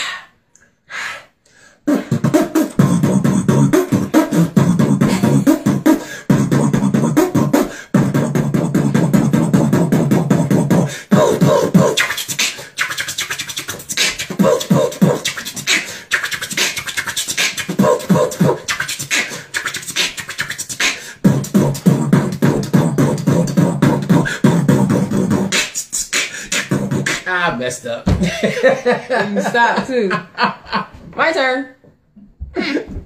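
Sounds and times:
man beatboxing: 1.9s - 28.0s.

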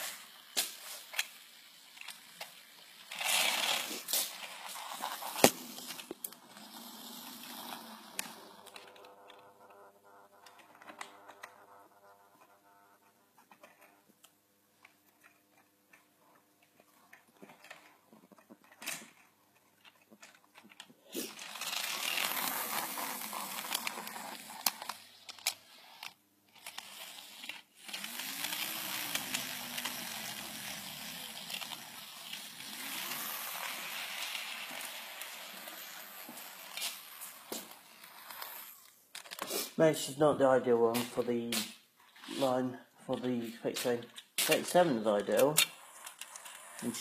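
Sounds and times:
model train whirring on track: 0.0s - 9.4s, 21.2s - 38.9s.

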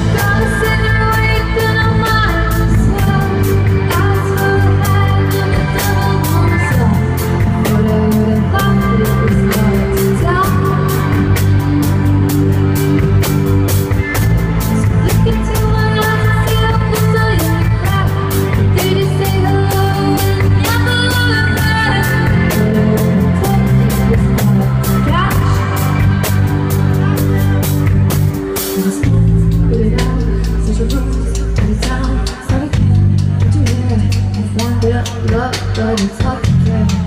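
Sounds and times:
woman singing: 0.0s - 12.8s, 14.6s - 26.5s, 28.4s - 37.0s
live rock band playing: 0.0s - 37.0s
steady drum beat: 0.0s - 37.0s.

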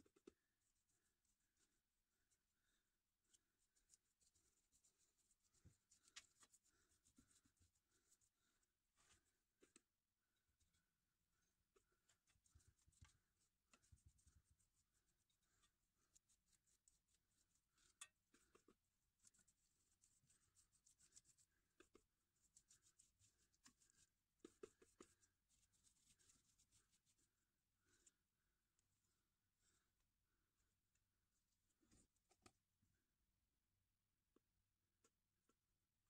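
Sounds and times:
paintbrush scratching and dabbing: 0.0s - 33.0s
brush tapping on metal: 11.8s - 26.8s.

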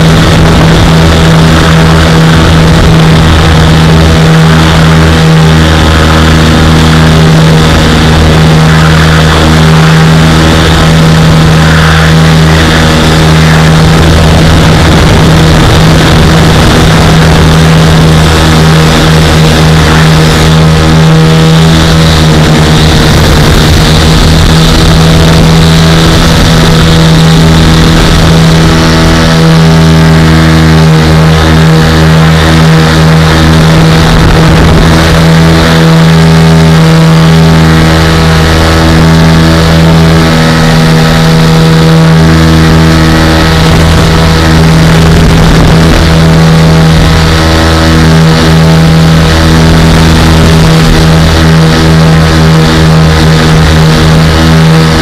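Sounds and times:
aircraft engine and propeller drone: 0.0s - 55.0s.

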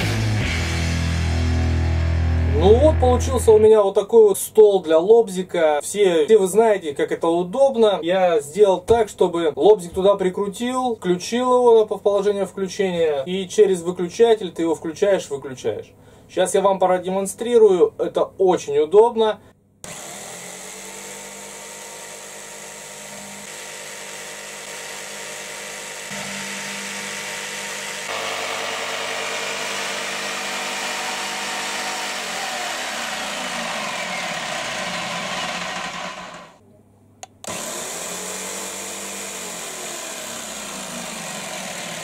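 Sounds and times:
jigsaw cutting plywood: 19.8s - 36.6s, 37.4s - 42.0s.

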